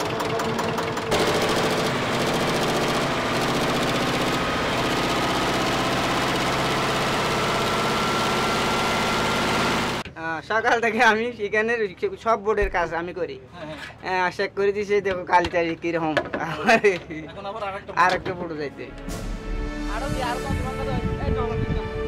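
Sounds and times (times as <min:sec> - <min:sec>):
boat engine running: 0:00.0 - 0:10.0.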